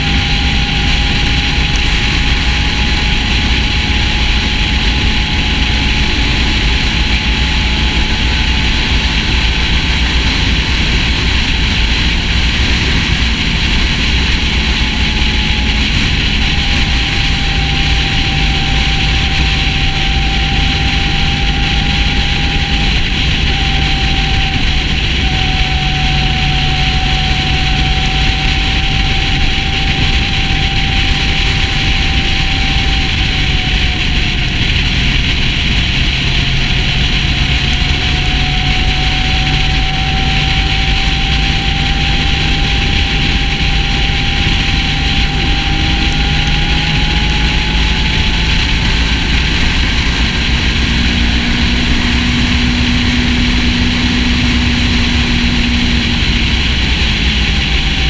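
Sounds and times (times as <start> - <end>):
motorcycle engine drone: 0.0 - 58.0
wind and road noise: 0.0 - 58.0.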